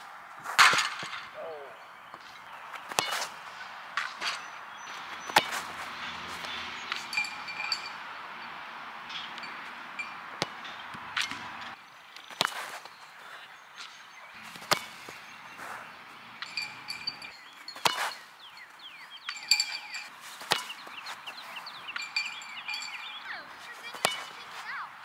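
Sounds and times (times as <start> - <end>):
soccer ball being kicked: 10.0 - 12.7
faint chirps: 14.2 - 23.7.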